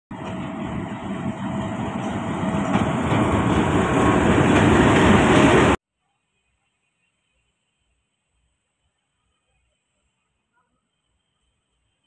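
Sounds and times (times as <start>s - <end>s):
diesel locomotive passing: 0.1s - 5.8s.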